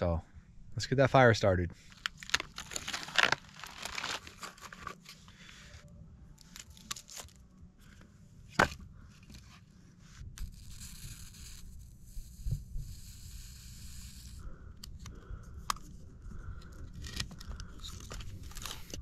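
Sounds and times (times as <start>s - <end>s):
paper crinkling and tearing: 1.8s - 5.5s, 6.4s - 7.4s, 16.9s - 19.0s.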